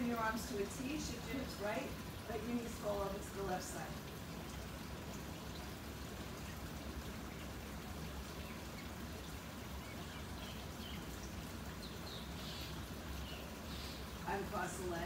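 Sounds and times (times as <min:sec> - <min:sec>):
background hiss with faint hum: 0:00.0 - 0:15.0.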